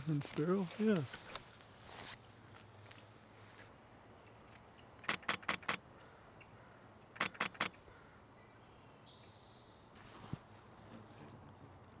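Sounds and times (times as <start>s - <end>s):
camera shutter clicks: 5.0s - 5.8s, 7.2s - 7.8s.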